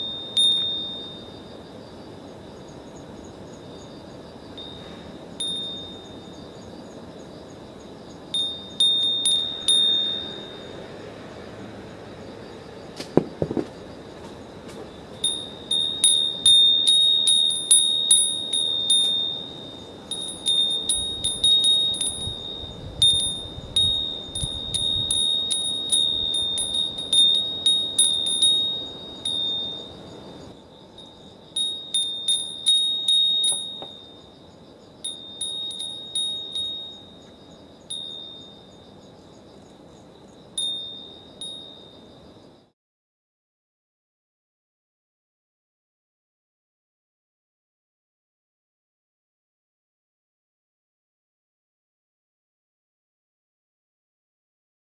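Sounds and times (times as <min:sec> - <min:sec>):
wind bell ringing: 0:00.0 - 0:01.6, 0:04.5 - 0:06.6, 0:08.3 - 0:11.0, 0:15.0 - 0:39.1, 0:40.4 - 0:42.2
faint outdoor hiss: 0:00.0 - 0:42.8.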